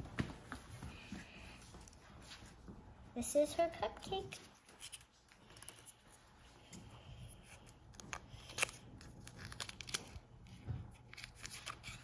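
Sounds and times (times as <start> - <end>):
paper liner rustling: 7.5 - 12.0.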